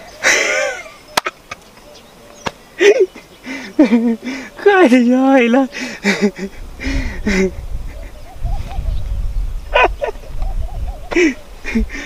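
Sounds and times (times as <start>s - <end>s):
man squealing and giggling: 0.0s - 1.3s, 2.8s - 4.5s, 9.7s - 12.0s.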